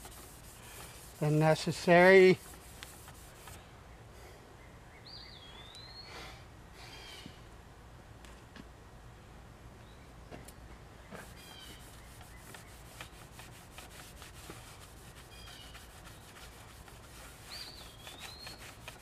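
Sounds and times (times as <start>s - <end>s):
rag rubbing metal: 0.0s - 3.6s
bird chirps: 4.6s - 6.1s, 17.4s - 18.8s
whistled bird call: 17.5s - 18.7s.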